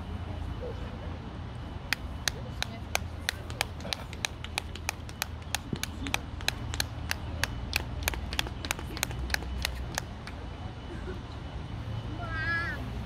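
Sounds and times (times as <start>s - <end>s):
hand claps in even rhythm: 1.9s - 10.4s.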